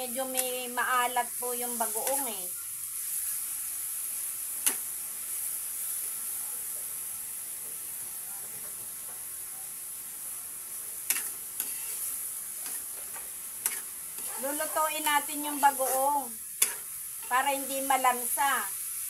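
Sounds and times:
meat sizzling in a wok: 0:00.0 - 0:19.0
metal spatula scraping a wok: 0:11.1 - 0:18.0.

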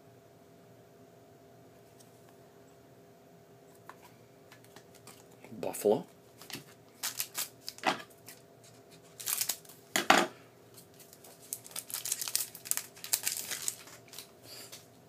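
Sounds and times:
cards rustling: 0:03.9 - 0:05.4, 0:06.4 - 0:09.9, 0:10.7 - 0:14.8
foil wrapper crinkling and tearing: 0:06.4 - 0:09.8, 0:10.8 - 0:14.7.

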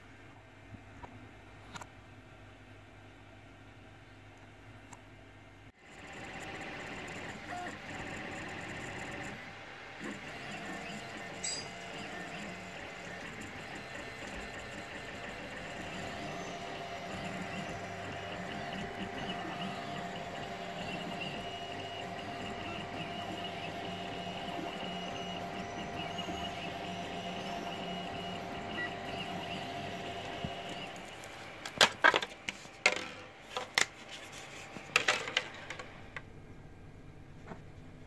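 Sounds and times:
printer humming and whining: 0:05.8 - 0:36.3.

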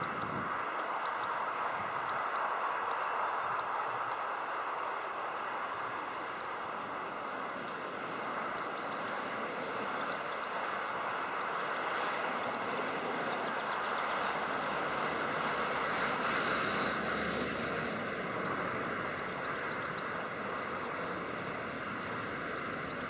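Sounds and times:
diesel locomotive engine running: 0:14.2 - 0:23.0.

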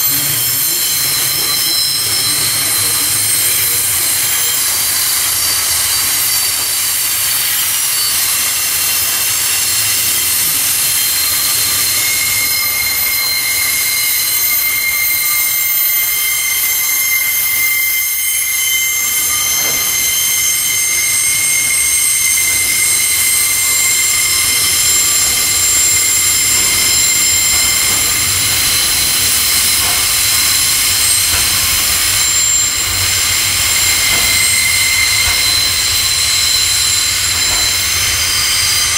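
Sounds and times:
train wheels squealing on curve: 0:00.0 - 0:38.9.

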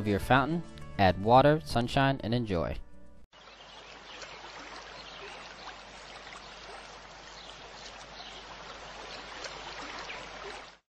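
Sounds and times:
fountain water trickling and splashing: 0:03.4 - 0:10.9.

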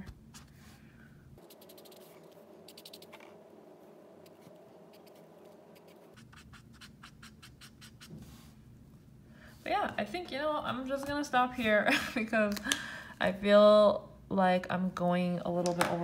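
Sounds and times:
marker nib scratching on paper: 0:01.4 - 0:03.3, 0:04.2 - 0:08.4.

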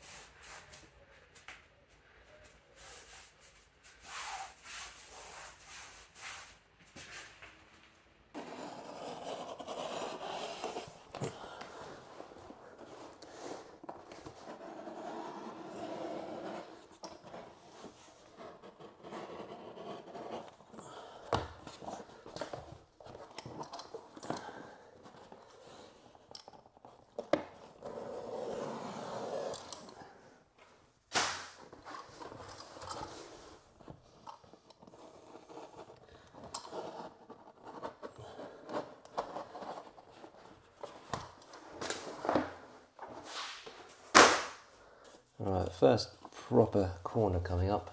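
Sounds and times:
vinyl sheet rustling and scraping: 0:31.1 - 0:34.2, 0:36.8 - 0:44.2.

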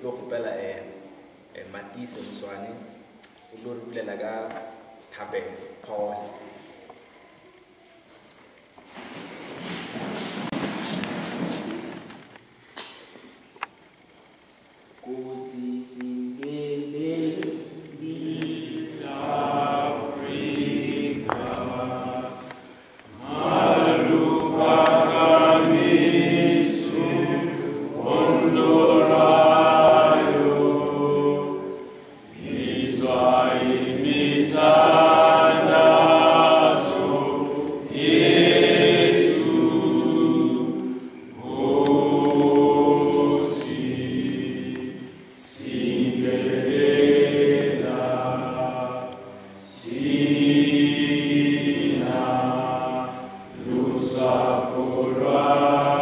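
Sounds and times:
group singing unaccompanied: 0:15.0 - 0:56.0.

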